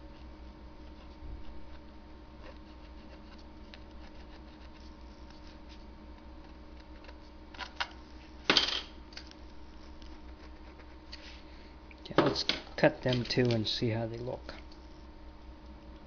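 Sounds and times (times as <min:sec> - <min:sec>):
pencil scratching: 0:02.5 - 0:03.4, 0:04.0 - 0:05.4, 0:10.1 - 0:11.0.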